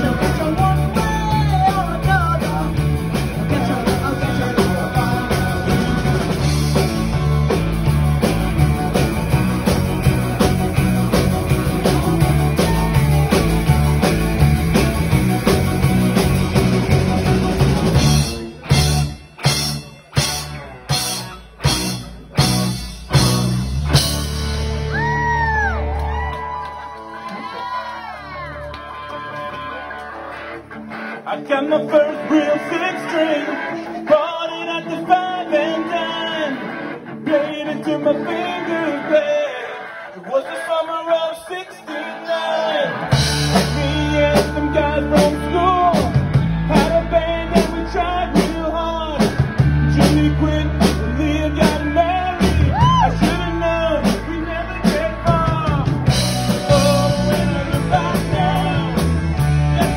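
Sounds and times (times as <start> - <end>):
man singing: 0.0 - 7.2, 31.2 - 59.9
drum kit beat: 0.0 - 26.5, 43.1 - 59.9
bass guitar: 0.0 - 59.9
electric guitar: 0.0 - 59.9
rock band playing: 0.0 - 59.9.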